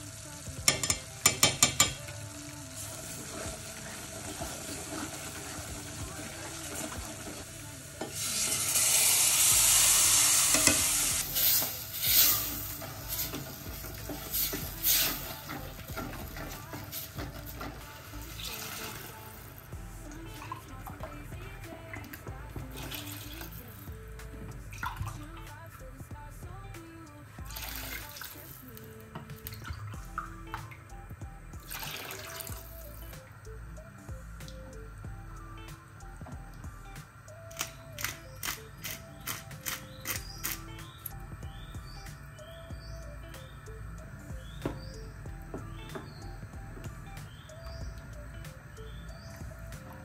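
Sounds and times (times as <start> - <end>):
tomatoes sizzling in hot pot: 0.0 - 25.6, 31.6 - 50.0
soft background music: 0.0 - 50.0
wooden spoon stirring: 11.4 - 19.3.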